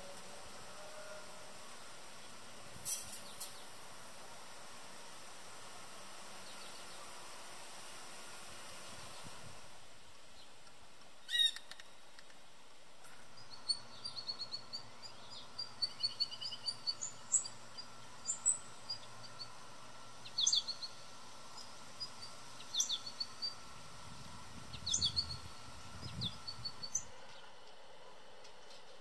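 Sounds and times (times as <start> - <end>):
songbirds chirping: 6.3 - 7.3, 13.1 - 27.8.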